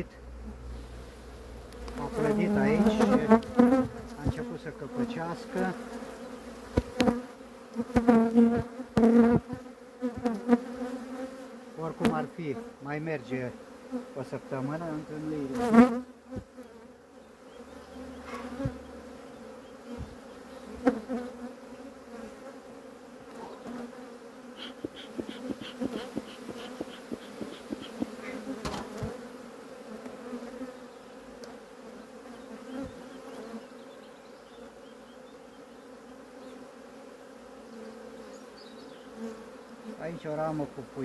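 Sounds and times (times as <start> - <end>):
bees buzzing: 0.0 - 41.0
quick high ticks: 24.6 - 28.4.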